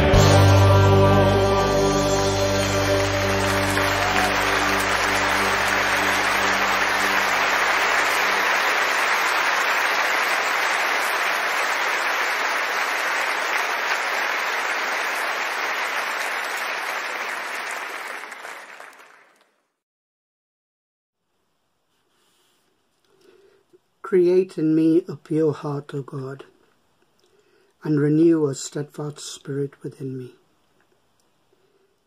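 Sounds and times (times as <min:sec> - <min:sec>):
worship song music: 0:00.0 - 0:15.4
audience applauding: 0:00.0 - 0:19.6.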